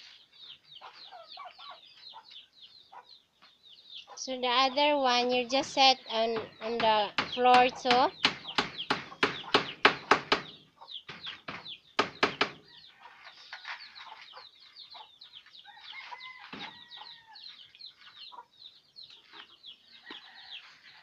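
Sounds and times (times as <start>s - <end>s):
chicks peeping: 0.0s - 21.0s
chicken clucking: 0.1s - 6.8s, 12.7s - 21.0s.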